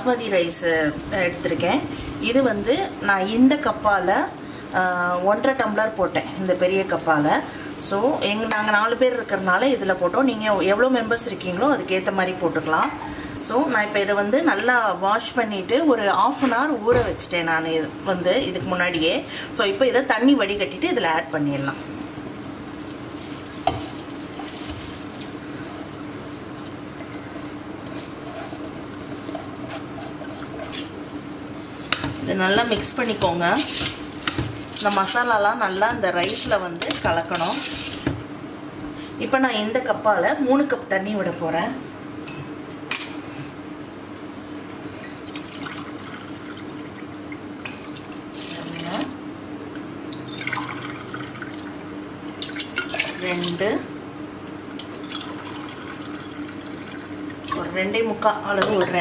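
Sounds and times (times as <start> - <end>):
steady low hum: 0.0 - 59.0
masala crackling: 20.6 - 38.4
water pouring into pot: 45.3 - 47.1, 47.8 - 51.7, 54.8 - 57.6
water pouring into steel cup: 55.0 - 56.8.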